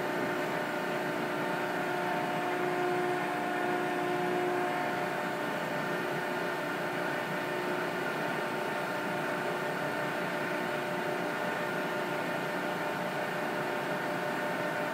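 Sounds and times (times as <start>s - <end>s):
hydraulic pump humming: 0.0s - 6.9s.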